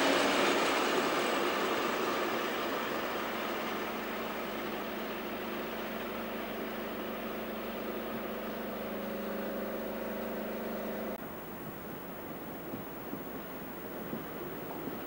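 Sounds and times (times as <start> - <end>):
diesel locomotive engine drone: 0.0 - 11.6.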